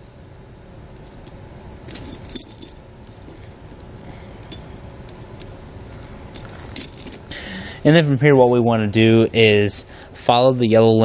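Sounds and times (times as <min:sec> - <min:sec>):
tire chain clinking and rattling: 0:01.2 - 0:07.4.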